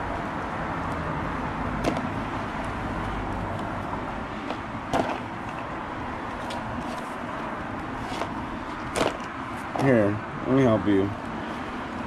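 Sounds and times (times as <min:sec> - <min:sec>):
outdoor background rumble: 0:00.0 - 0:12.0.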